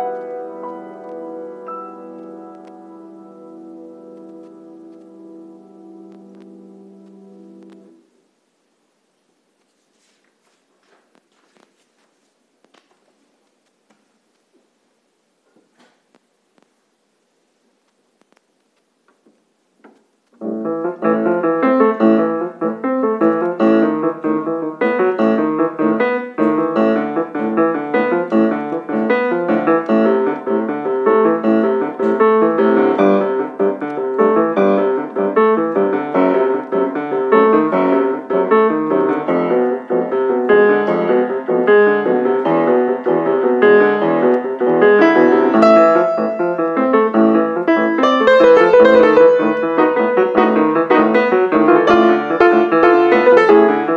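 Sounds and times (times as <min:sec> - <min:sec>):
grand piano four hands: 0:00.0 - 0:08.0, 0:20.4 - 0:53.9.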